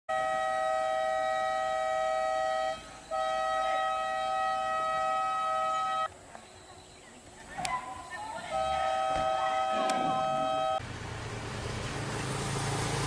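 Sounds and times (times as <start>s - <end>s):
two-tone horn blasts: 0.1s - 6.1s, 8.5s - 10.8s.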